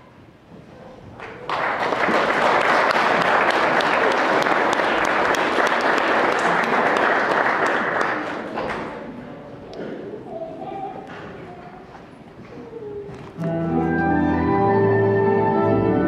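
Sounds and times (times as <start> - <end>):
audience applauding: 1.2 - 9.1.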